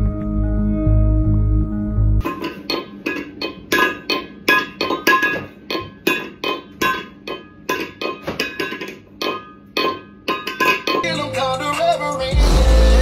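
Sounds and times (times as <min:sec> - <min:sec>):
metal bowl clanging: 0:02.2 - 0:11.1.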